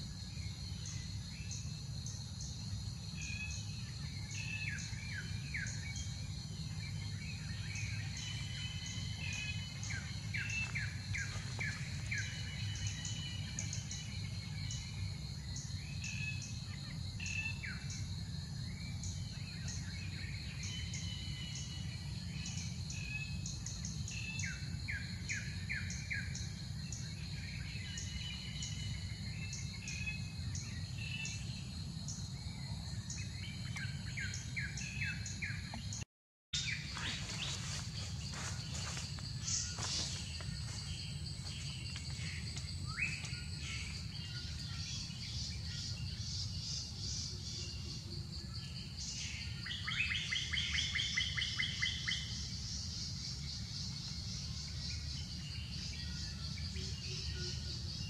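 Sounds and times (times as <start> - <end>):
birds chirping: 0.0 - 18.2, 36.6 - 58.0
pulsing insect drone: 0.0 - 36.0, 36.6 - 58.0.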